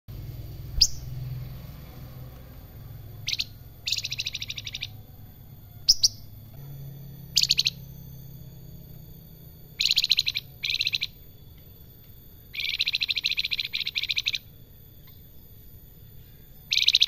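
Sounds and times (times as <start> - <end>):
bird whistling upswept notes: 0.7 - 1.3, 3.2 - 5.1, 7.2 - 8.1, 9.7 - 11.6, 12.5 - 17.0
bird chattering trills: 0.7 - 1.4, 3.0 - 6.6, 7.2 - 8.1, 9.5 - 17.0.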